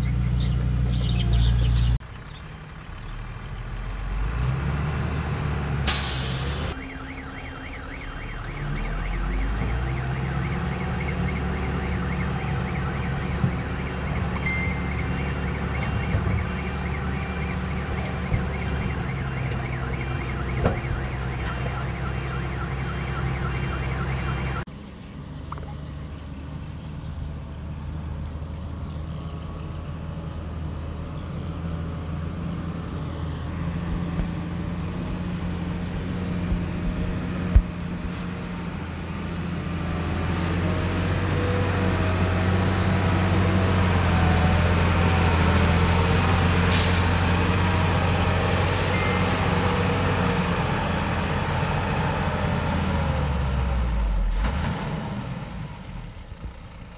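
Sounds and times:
diesel machinery engines running: 0.0s - 56.9s
brief hiss: 5.9s - 6.8s.

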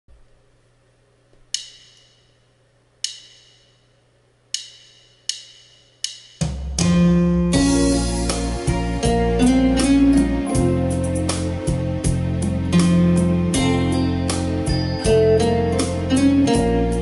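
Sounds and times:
keyboard percussive hits: 1.5s - 2.3s, 3.0s - 3.8s, 4.6s - 17.0s
keyboard accompaniment with drums: 6.0s - 17.0s.

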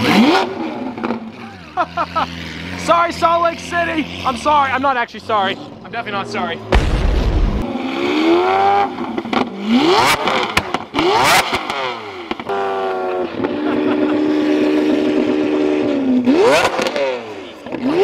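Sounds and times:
car engine revving: 0.0s - 18.0s
exhaust cracks: 2.8s - 7.7s.

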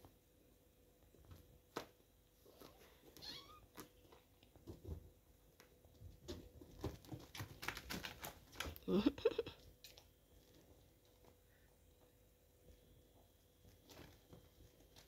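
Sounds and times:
kitten meowing: 3.2s - 3.7s.

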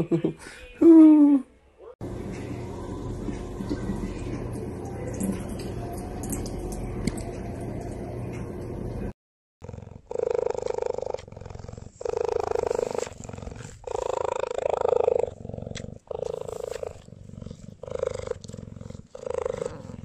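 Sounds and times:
cheetah purring: 9.6s - 20.0s.

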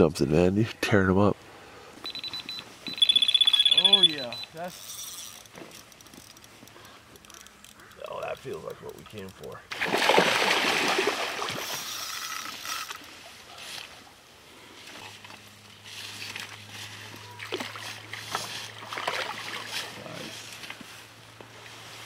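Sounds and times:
water sloshing: 9.1s - 13.4s, 16.3s - 20.1s
fish splashing and thrashing: 9.2s - 13.4s, 16.2s - 20.0s.

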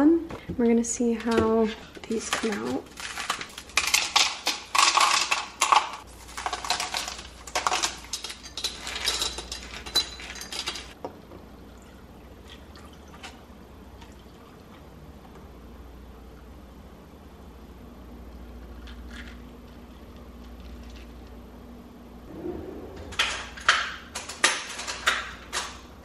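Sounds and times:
ice cubes clattering into a jar: 2.1s - 11.0s.

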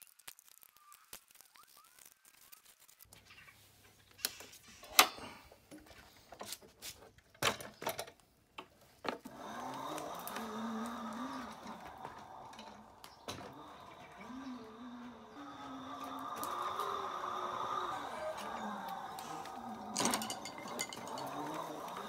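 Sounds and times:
electric motor and chain whirring: 0.0s - 3.2s, 9.1s - 22.0s
scooter knocks and clicks: 4.9s - 17.1s, 19.9s - 22.0s
dove cooing: 10.1s - 22.0s.

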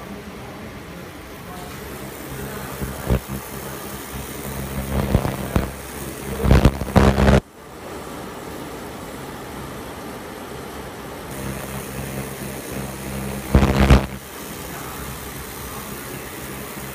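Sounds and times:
laser cutting machine humming: 1.2s - 7.5s, 11.3s - 16.9s.

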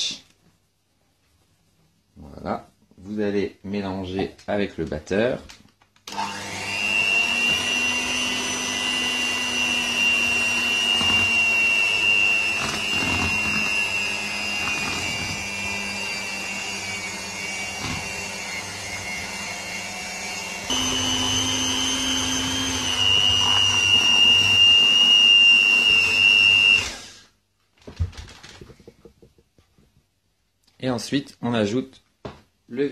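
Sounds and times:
electric hand mixer whining: 6.1s - 27.3s.

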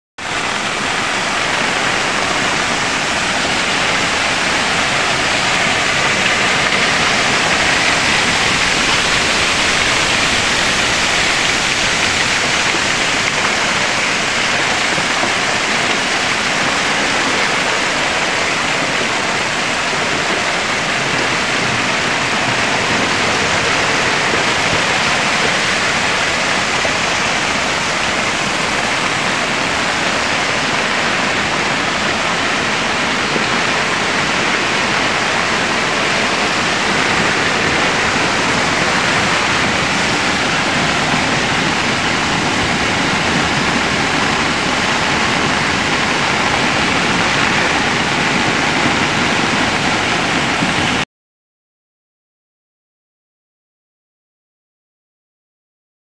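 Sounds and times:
floodwater rushing down channel: 0.2s - 51.0s.

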